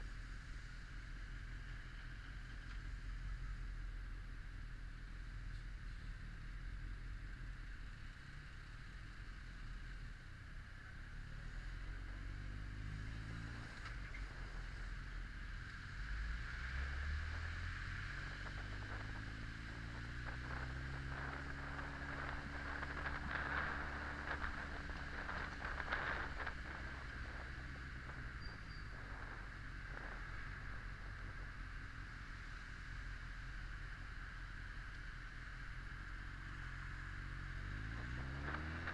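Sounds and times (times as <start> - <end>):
motorcycle engine running: 17.3 - 38.9
wind on microphone: 18.2 - 31.6.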